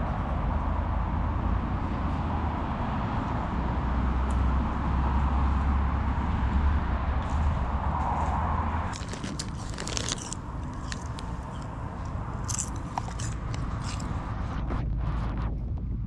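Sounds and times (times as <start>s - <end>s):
motorway traffic rumble: 0.0s - 16.0s
foil crisp packet crinkling: 8.9s - 11.7s, 12.4s - 14.2s.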